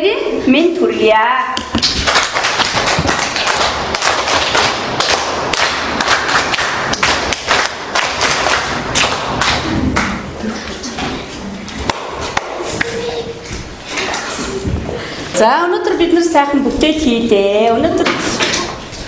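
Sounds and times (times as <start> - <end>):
children clapping: 1.7 - 10.4, 11.7 - 14.4.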